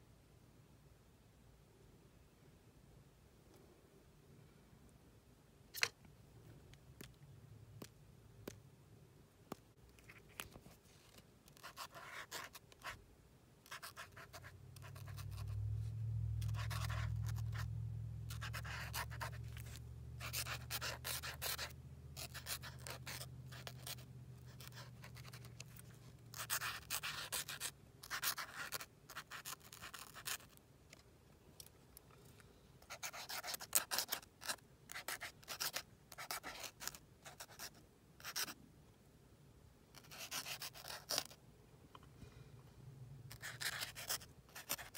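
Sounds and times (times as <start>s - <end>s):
low steady hum: 0.0s - 33.6s, 37.1s - 44.9s
marker scratching on paper: 11.1s - 13.0s, 13.6s - 15.6s, 16.4s - 17.7s, 18.3s - 30.6s, 32.8s - 38.6s, 40.0s - 41.4s, 43.3s - 44.9s.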